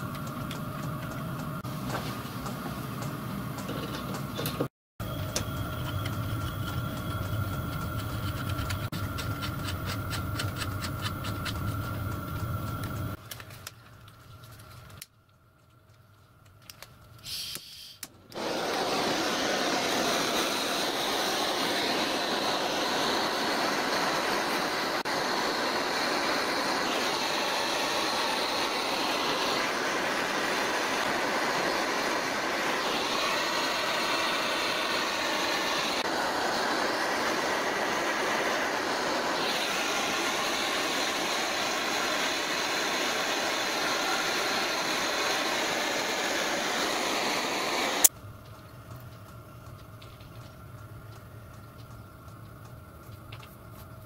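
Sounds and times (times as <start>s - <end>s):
blowtorch hissing: 17.2s - 48.1s.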